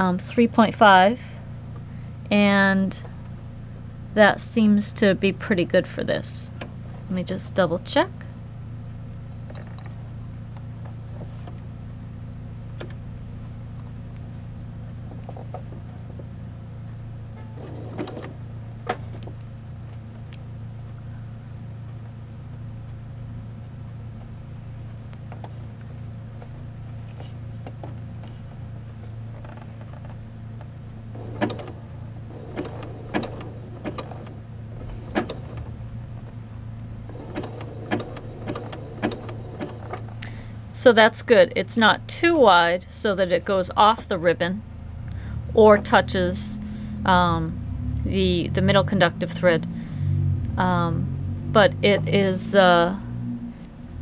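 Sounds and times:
sewing machine running: 0:17.6 - 0:18.4, 0:31.1 - 0:35.8, 0:37.1 - 0:40.2.

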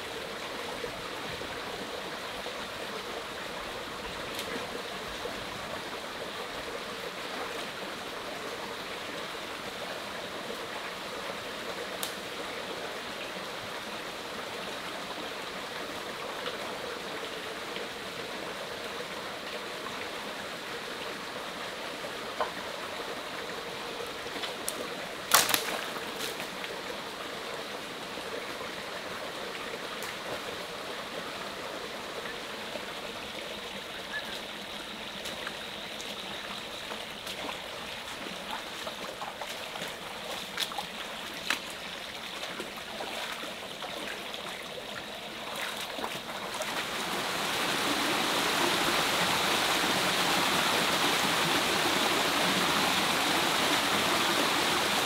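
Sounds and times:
small waterfall rushing: 0:00.0 - 0:55.0
stream running over rocks: 0:00.0 - 0:55.0
footsteps wading through water: 0:35.2 - 0:46.9.

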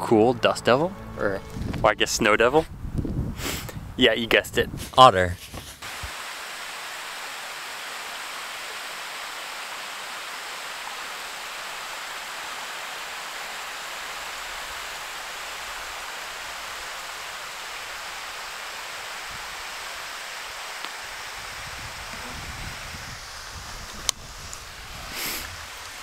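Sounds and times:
water rushing: 0:05.8 - 0:26.0.

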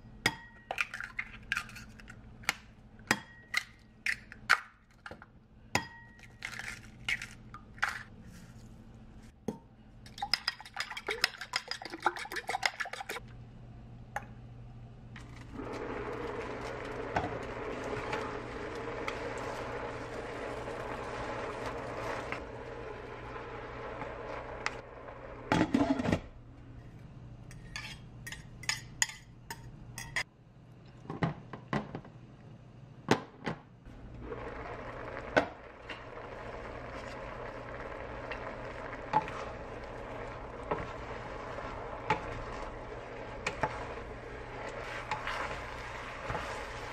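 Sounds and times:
eggs being beaten clicking: 0:10.1 - 0:13.2
food sizzling in pot: 0:15.5 - 0:26.0, 0:33.9 - 0:46.9
utensils clinking against pot: 0:27.5 - 0:30.3.

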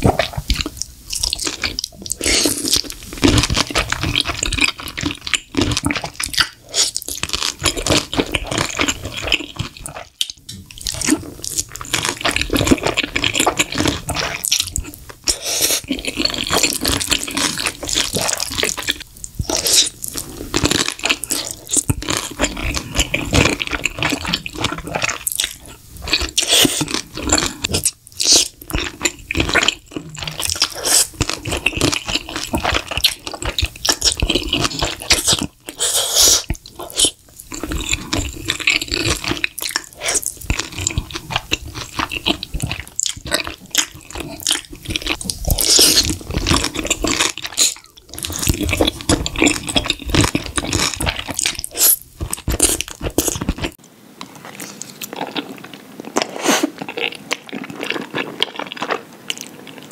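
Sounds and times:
wet chewing and slurping: 0:00.0 - 0:59.9.

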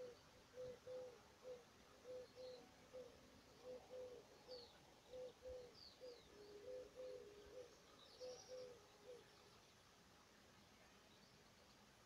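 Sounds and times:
dove cooing: 0:00.0 - 0:09.2
songbirds chirping: 0:00.0 - 0:12.0.

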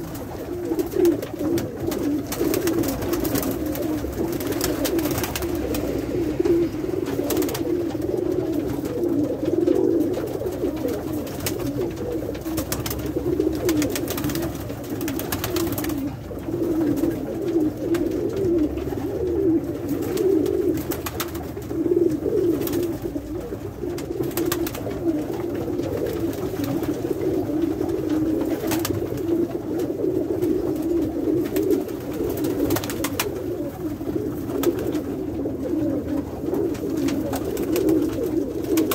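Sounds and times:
wing flaps: 0:00.0 - 0:19.0
pigeons cooing: 0:00.0 - 0:38.9.

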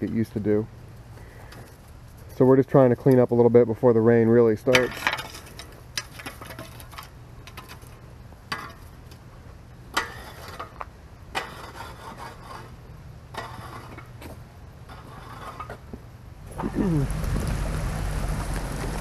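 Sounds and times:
low steady hum: 0:00.0 - 0:19.0
rake scraping over soil and gravel: 0:04.7 - 0:09.2, 0:09.9 - 0:19.0.

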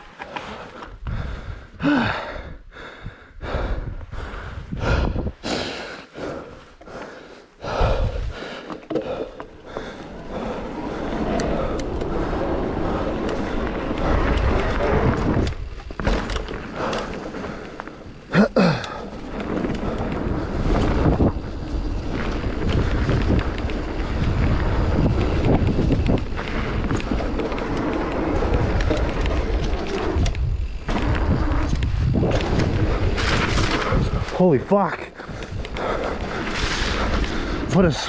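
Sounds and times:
bike rattling and tyre noise: 0:00.0 - 0:38.0
wind buffeting microphone: 0:00.8 - 0:05.5, 0:07.6 - 0:08.5, 0:09.2 - 0:18.3, 0:18.9 - 0:38.0.

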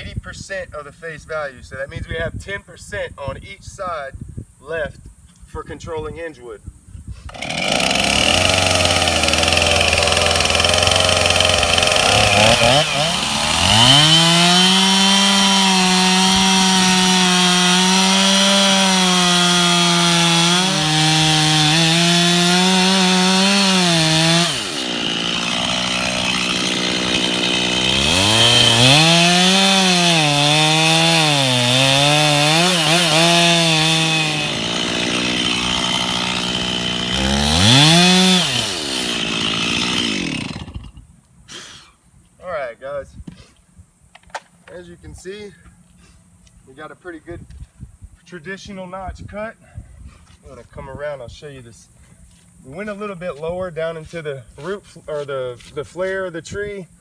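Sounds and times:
chainsaw cutting wood: 0:07.2 - 0:41.0.

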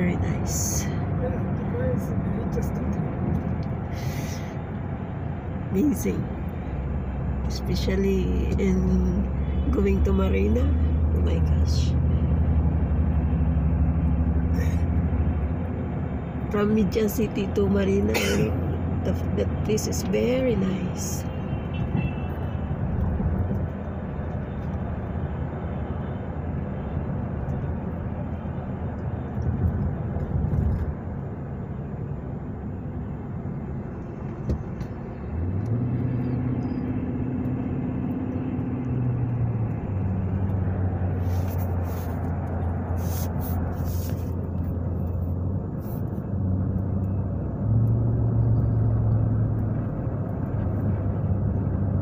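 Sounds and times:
car engine: 0:00.0 - 0:52.0
road noise inside car: 0:00.0 - 0:52.0.

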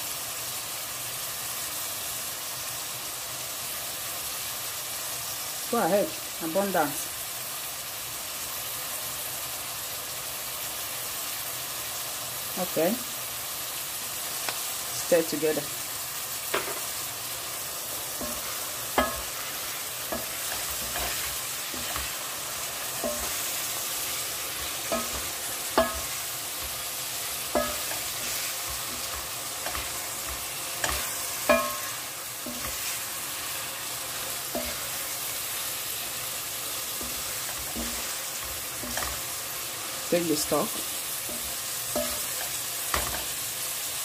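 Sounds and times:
meat and vegetables sizzling: 0:00.0 - 0:44.0.

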